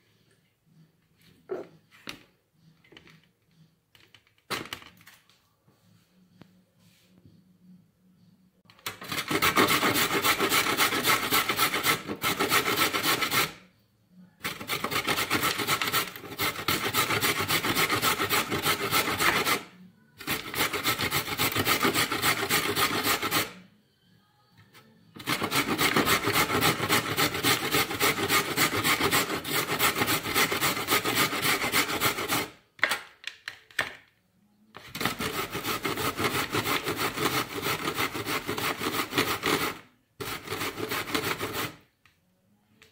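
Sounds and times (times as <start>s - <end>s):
vegetables grated on metal grater: 8.9s - 13.6s, 14.4s - 23.6s, 25.2s - 32.6s, 34.9s - 41.8s.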